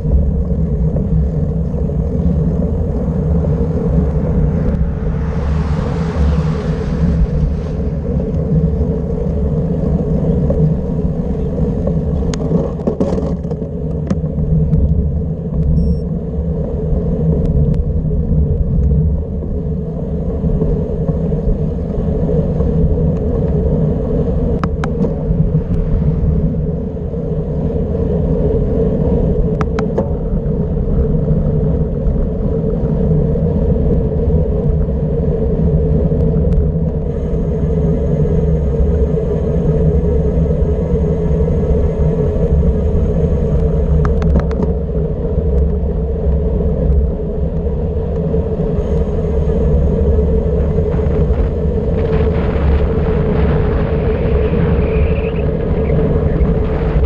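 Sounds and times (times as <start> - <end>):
bicycle tyres rolling on asphalt: 0.0 - 57.0
wind buffeting: 0.0 - 57.0
bicycle clicks and rattles: 12.1 - 14.2.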